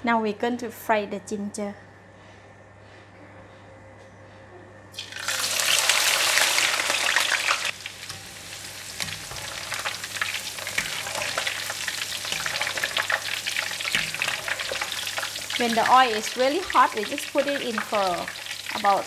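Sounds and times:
ginger sizzling in hot oil: 0:05.0 - 0:19.0
wire strainer stirring: 0:08.9 - 0:19.0.

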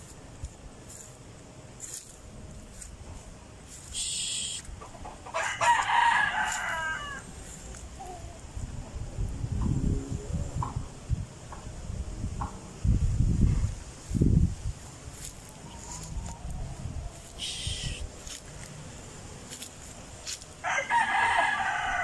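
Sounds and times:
rooster crowing: 0:05.2 - 0:08.4, 0:15.4 - 0:18.0, 0:20.6 - 0:22.0.

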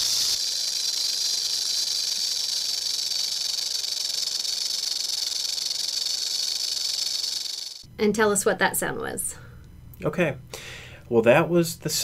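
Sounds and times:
rattlesnake rattling: 0:00.0 - 0:07.9.

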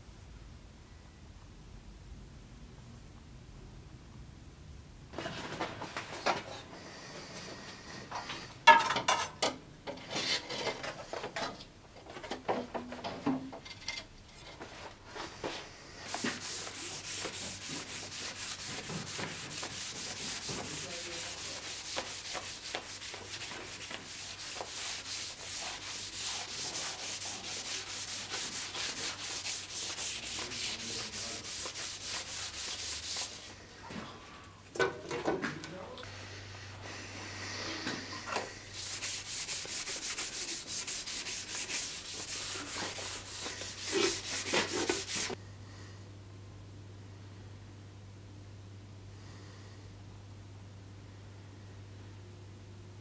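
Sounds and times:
sandpaper rubbing steel blade: 0:16.1 - 0:33.5, 0:38.8 - 0:45.4.

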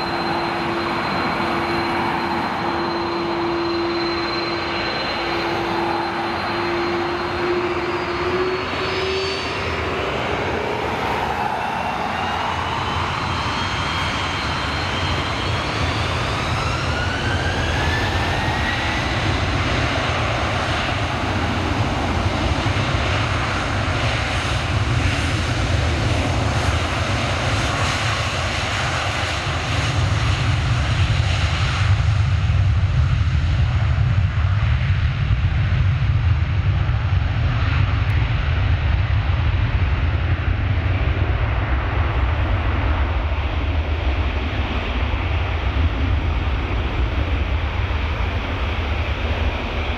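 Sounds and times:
jet engines spooling up: 0:00.0 - 0:35.4.

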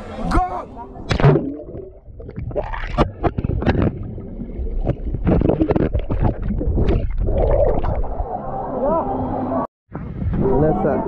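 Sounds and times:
water splashing and churning: 0:00.0 - 0:08.4.

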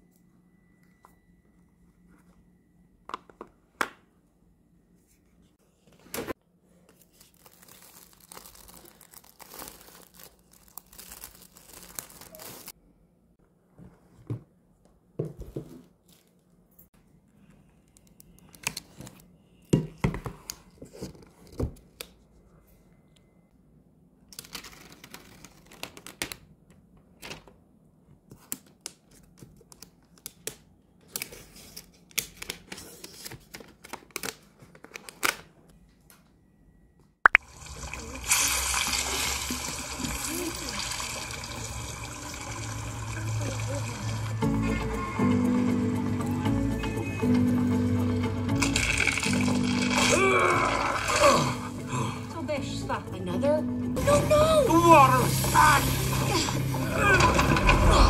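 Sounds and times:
plastic wrap crinkling and tearing: 0:06.9 - 0:12.8.

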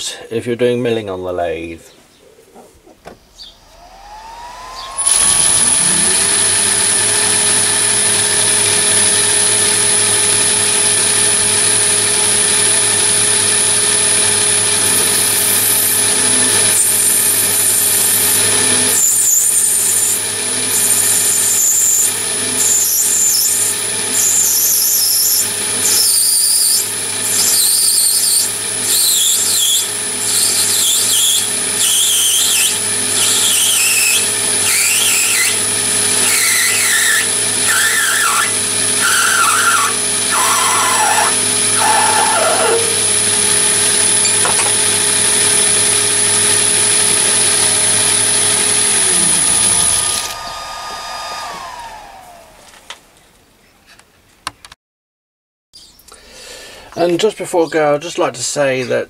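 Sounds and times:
lathe whining: 0:03.4 - 0:53.1
cutting tool squealing on metal: 0:14.8 - 0:44.6.

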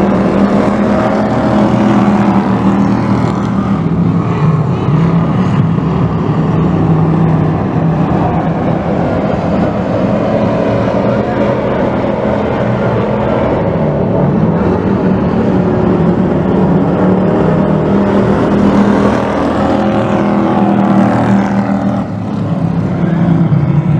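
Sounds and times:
race truck engines running hard: 0:00.0 - 0:23.9.

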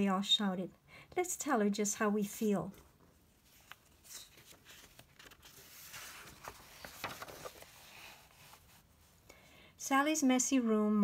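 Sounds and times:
paper page turning: 0:03.4 - 0:08.8.

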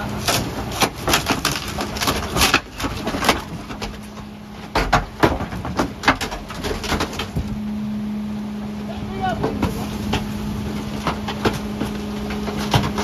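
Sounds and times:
wooden furniture cracking and splintering: 0:00.0 - 0:07.5, 0:10.9 - 0:13.0
steady mechanical hum: 0:00.0 - 0:13.0.

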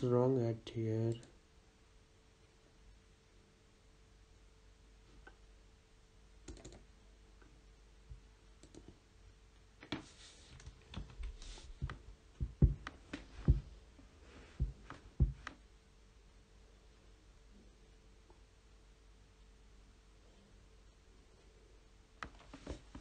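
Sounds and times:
keyboard typing: 0:06.4 - 0:06.8, 0:08.6 - 0:09.0.

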